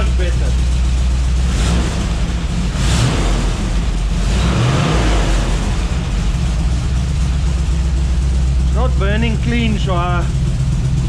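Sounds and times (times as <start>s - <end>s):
engine revving: 0.0s - 11.0s.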